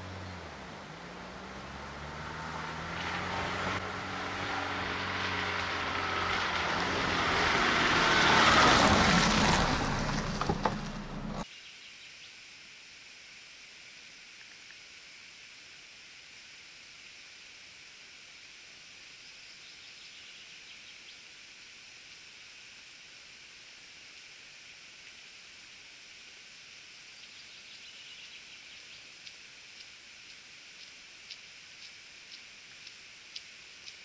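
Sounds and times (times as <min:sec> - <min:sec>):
vehicle on gravel road: 0:00.0 - 0:11.5
high insect drone: 0:11.4 - 0:34.0.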